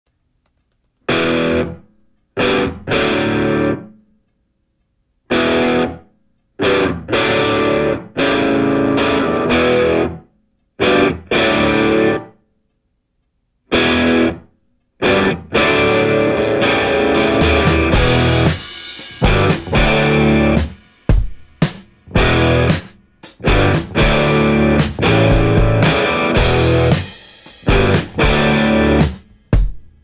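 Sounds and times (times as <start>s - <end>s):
distorted electric guitar chords: 1.1s - 1.8s, 2.4s - 3.9s, 5.3s - 6.0s, 6.6s - 10.2s, 10.8s - 12.4s, 13.7s - 20.8s, 22.0s - 29.3s.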